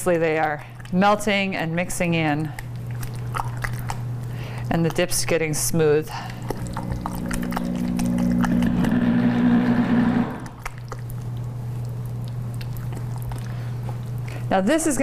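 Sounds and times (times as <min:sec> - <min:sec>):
constant low hum: 0:00.0 - 0:15.0
humming drone: 0:06.3 - 0:10.7.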